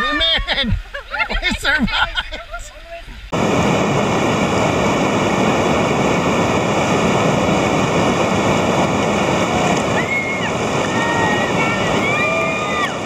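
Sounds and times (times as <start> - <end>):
whitewater rapids rushing: 3.4 - 13.0.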